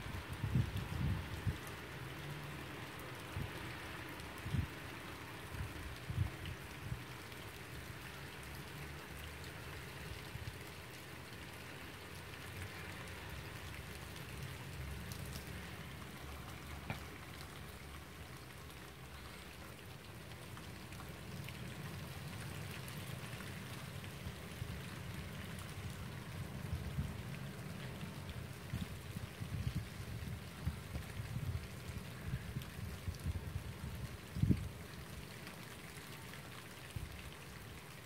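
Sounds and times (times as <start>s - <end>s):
light rain falling: 0.0s - 38.0s
raindrop ticks: 11.6s - 23.0s.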